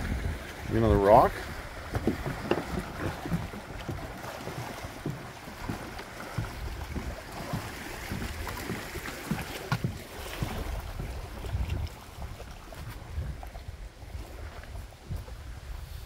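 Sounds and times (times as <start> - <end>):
water lapping around dock: 0.0 - 16.0
footsteps on wooden boards: 0.1 - 13.7.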